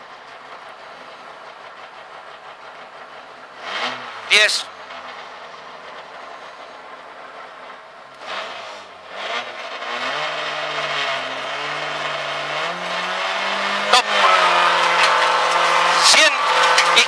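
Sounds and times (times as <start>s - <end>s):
rally car engine revving: 0.0s - 17.0s
sharp crack: 12.7s - 17.0s.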